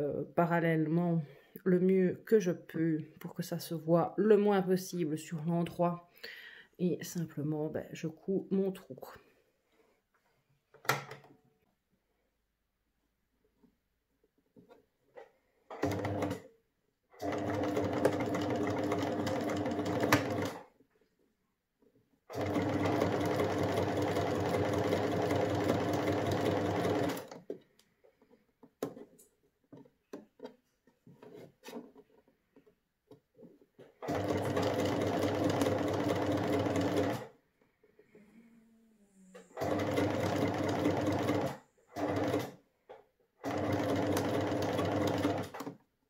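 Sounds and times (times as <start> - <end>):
sewing machine stitching: 15.7 - 16.5, 17.1 - 20.7, 22.3 - 29.2, 33.8 - 37.3, 39.2 - 42.6, 43.4 - 45.8.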